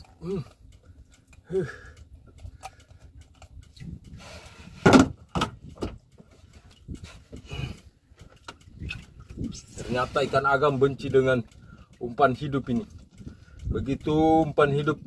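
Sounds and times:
knocks and rustles on wooden boat: 4.4s - 7.4s
thump on boat: 4.8s - 6.0s.

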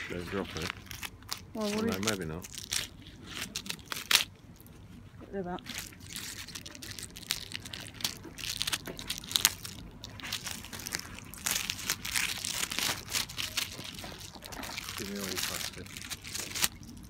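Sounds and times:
plastic wrapping crinkling and tearing: 0.0s - 5.0s, 5.6s - 17.0s.

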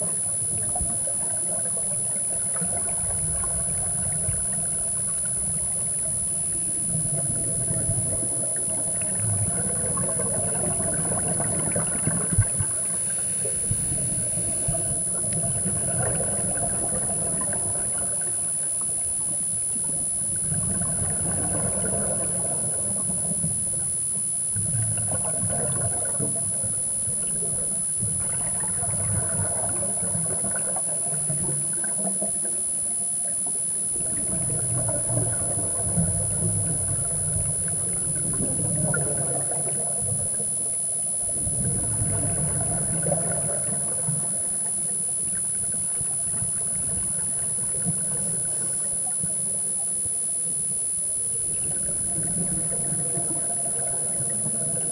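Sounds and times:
high-pitched whine: 0.0s - 54.9s
scuba regulator bubbling exhalation: 6.8s - 19.1s, 19.8s - 23.8s, 24.4s - 32.5s.

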